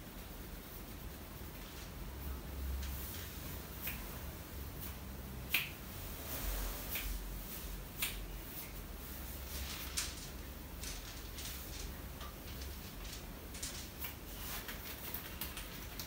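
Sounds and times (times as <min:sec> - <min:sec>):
fingers snapping: 0:03.8 - 0:04.1, 0:05.5 - 0:05.8, 0:08.0 - 0:08.2.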